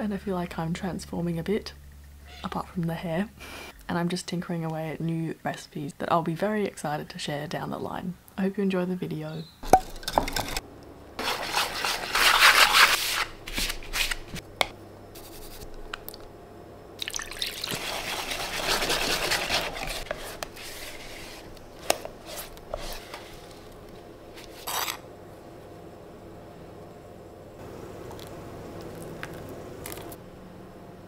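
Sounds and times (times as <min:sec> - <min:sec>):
spatula scraping metal tin: 0:11.2 - 0:14.2, 0:17.7 - 0:23.6, 0:24.4 - 0:25.0
liquid poured into bowl: 0:17.0 - 0:18.7
wire whisk beating batter: 0:17.6 - 0:23.0.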